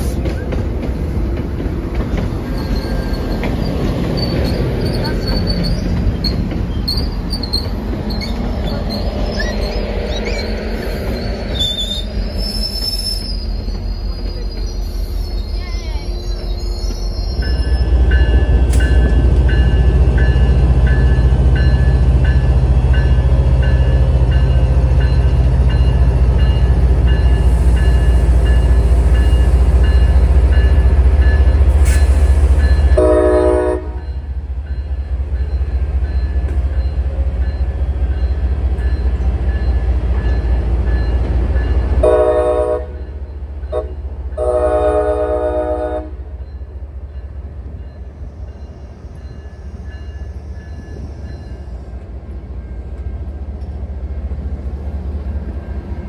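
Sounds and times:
diesel locomotive rumbling: 0.0s - 56.0s
train coaches rolling: 0.0s - 56.0s
locomotive horn: 32.9s - 34.1s, 42.0s - 43.0s, 43.7s - 46.4s.

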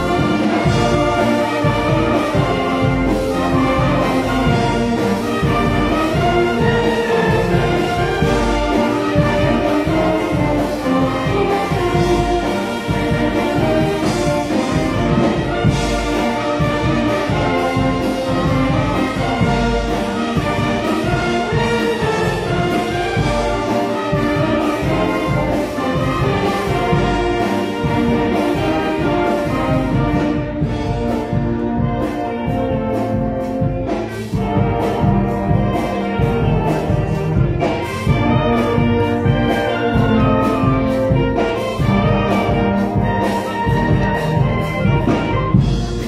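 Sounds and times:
concert band playing: 0.0s - 46.0s.

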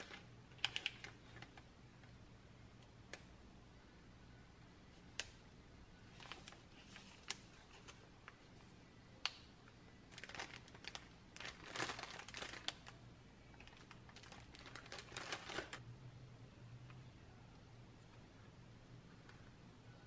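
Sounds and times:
plastic packaging crinkling: 0.0s - 1.6s, 10.1s - 15.8s.

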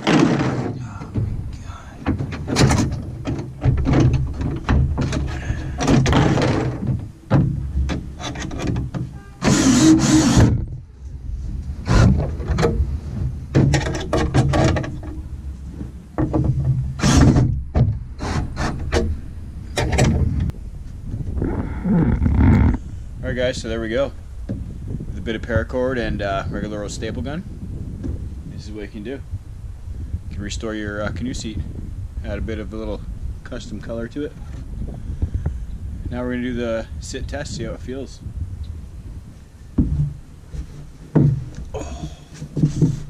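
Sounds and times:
wood and hardware knocking: 41.1s - 41.7s.

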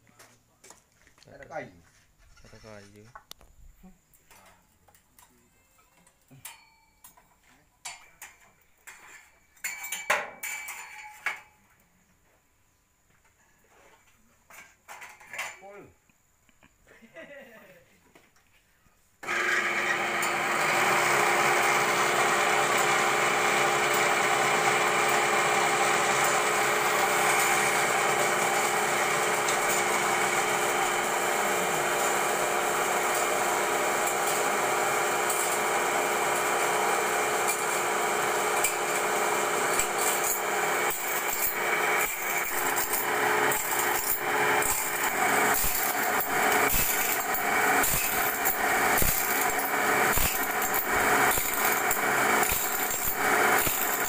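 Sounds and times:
grinding machine whirring: 19.2s - 54.0s.

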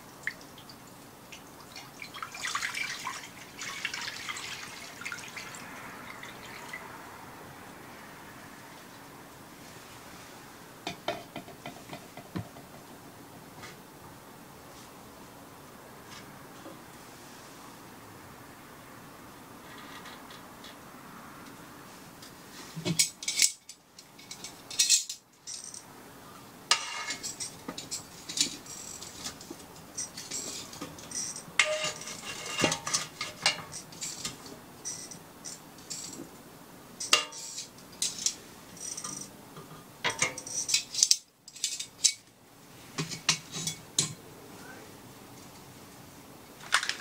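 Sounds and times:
metal tongs clinking on stove: 26.7s - 29.4s, 30.0s - 36.2s, 37.0s - 39.3s, 40.1s - 42.2s.

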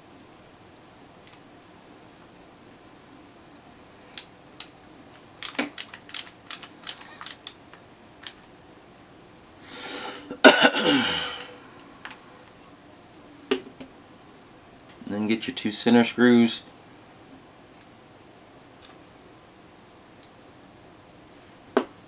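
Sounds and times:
person coughing: 10.3s - 11.4s.

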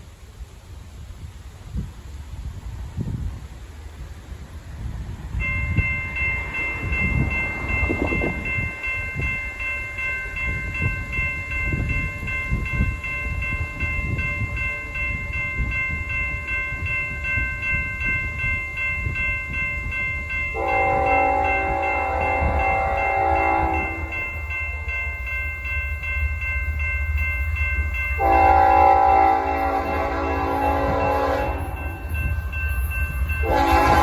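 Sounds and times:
locomotive air horn chord: 20.5s - 24.2s, 28.2s - 32.1s, 33.4s - 34.0s.

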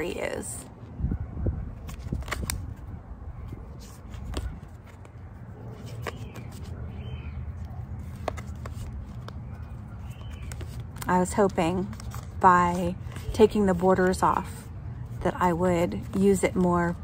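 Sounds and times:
cards clicking and sliding: 1.8s - 2.9s, 3.7s - 5.2s, 5.8s - 14.6s.

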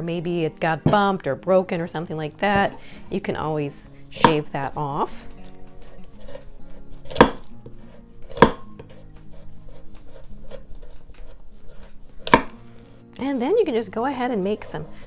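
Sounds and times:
knife chopping on wooden board: 4.2s - 4.5s, 5.4s - 12.6s.

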